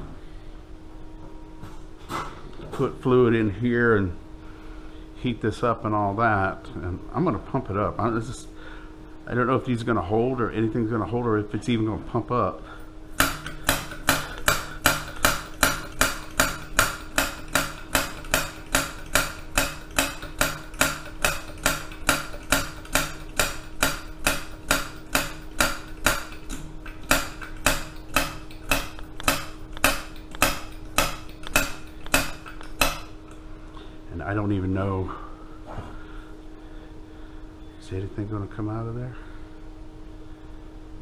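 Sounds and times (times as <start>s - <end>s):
hand pump plunger clacking: 13.2s - 33.1s.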